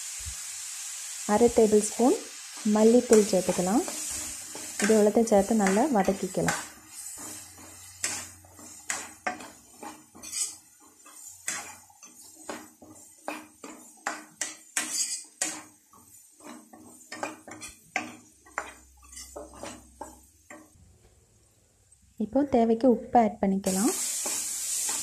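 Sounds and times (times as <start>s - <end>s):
spatula scraping pan: 2.4s - 20.8s, 23.7s - 25.0s.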